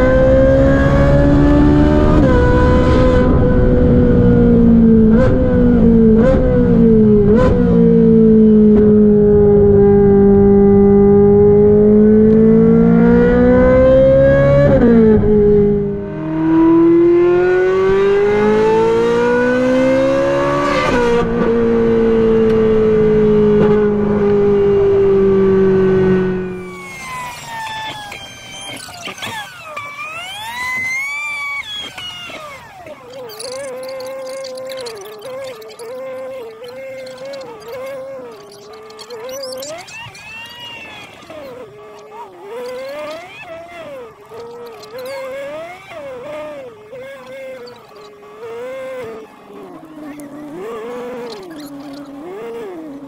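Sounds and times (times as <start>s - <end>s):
sports car engine at full throttle: 0.0s - 28.3s, 41.7s - 53.0s.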